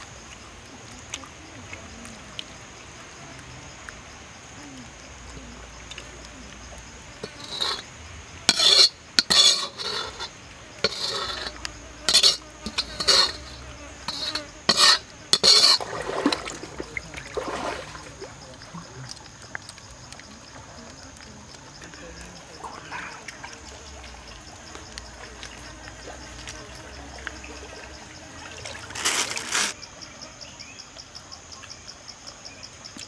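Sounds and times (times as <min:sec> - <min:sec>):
utensil scraping metal wok: 0:07.2 - 0:16.4.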